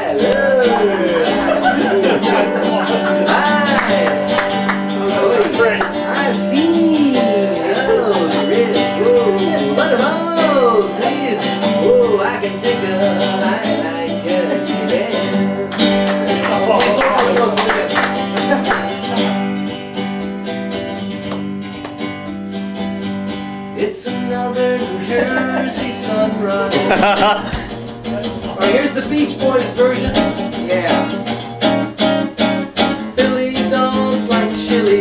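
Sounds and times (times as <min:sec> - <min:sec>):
man vocalising: 0:00.0 - 0:19.6, 0:23.8 - 0:31.4
jazz guitar playing chords: 0:00.0 - 0:35.0.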